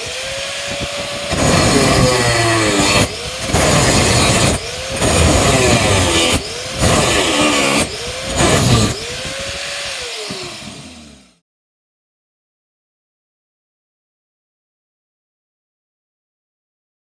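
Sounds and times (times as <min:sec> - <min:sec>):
angle grinder grinding steel: 0:00.0 - 0:11.4.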